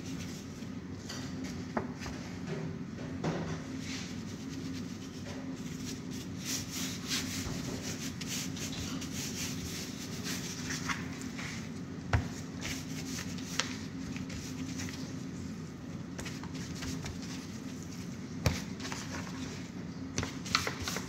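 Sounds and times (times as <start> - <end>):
gloved hands rubbing fish: 3.9 - 11.6.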